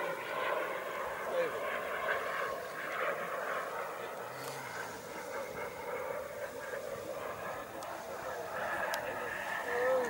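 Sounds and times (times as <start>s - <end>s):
distant model jet engine: 0.0s - 10.0s.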